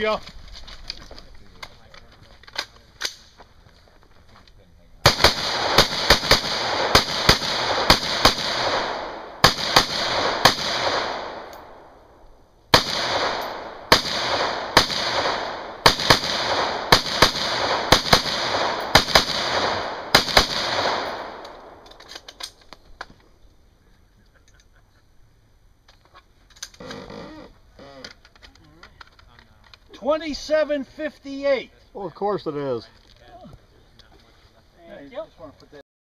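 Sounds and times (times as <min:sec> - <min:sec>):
rapid gunshots with echo: 0:05.0 - 0:11.5, 0:12.7 - 0:21.8.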